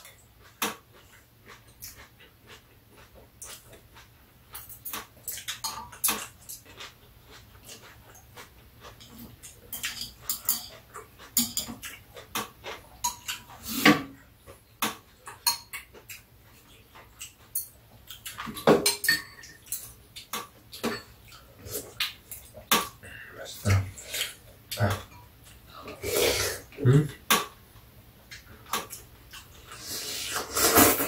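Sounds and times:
utensils clinking on ceramic bowls: 0:09.0 - 0:11.9, 0:13.0 - 0:13.5, 0:15.3 - 0:15.9, 0:18.6 - 0:20.0, 0:20.8 - 0:21.2.

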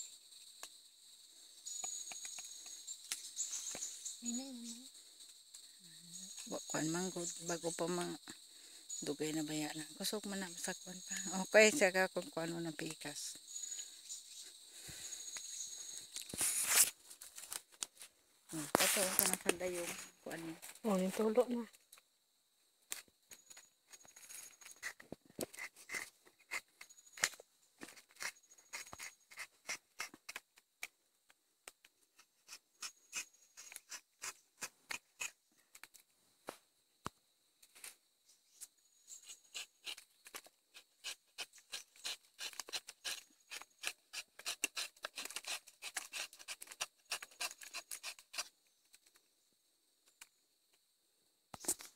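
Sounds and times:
dry scratching and clicking: 0:22.9 - 0:30.9, 0:31.8 - 0:36.0, 0:39.1 - 0:49.2.

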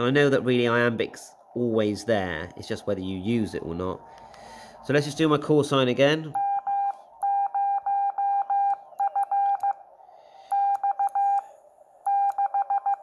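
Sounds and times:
morse code beeps: 0:06.3 - 0:09.8, 0:10.5 - 0:11.4, 0:12.1 - 0:13.0.

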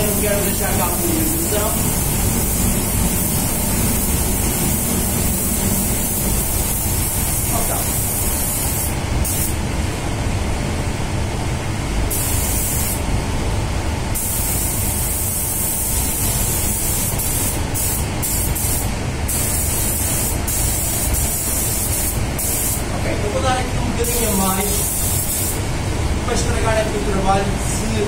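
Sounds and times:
spray gun hissing in bursts: 0:00.0 - 0:09.6, 0:12.1 - 0:13.1, 0:14.1 - 0:22.9, 0:24.0 - 0:25.7
steady low rumble: 0:00.0 - 0:28.0.

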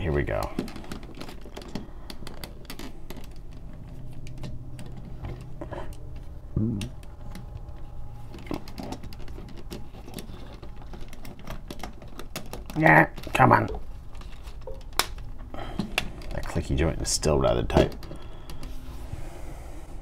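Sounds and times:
plastic parts tapping: 0:00.0 - 0:18.9.

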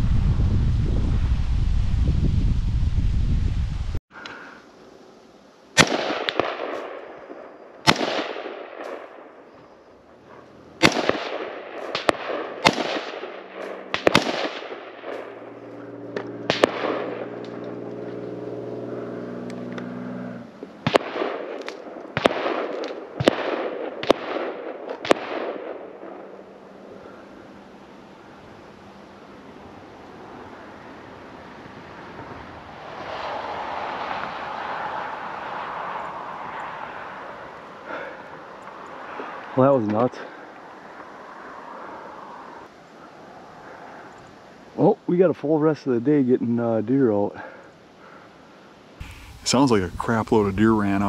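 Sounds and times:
gunshots echoing: 0:05.8 - 0:09.3, 0:10.8 - 0:15.6, 0:16.4 - 0:17.6, 0:20.8 - 0:26.4.

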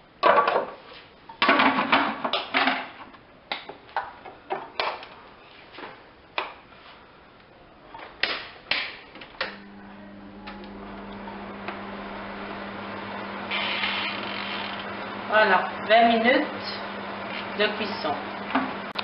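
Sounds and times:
kitchen appliance humming: 0:09.4 - 0:19.0.

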